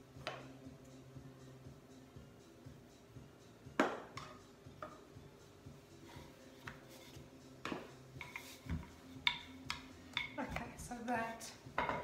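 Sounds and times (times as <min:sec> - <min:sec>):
rolling pin knocking on stone worktop: 0:11.8 - 0:12.0.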